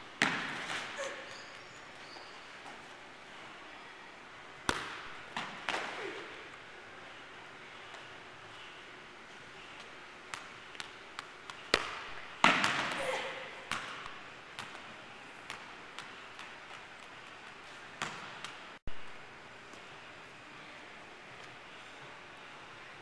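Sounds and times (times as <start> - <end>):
ball thudding in echoing hall: 0.0 - 2.9, 4.6 - 6.7, 9.8 - 19.9.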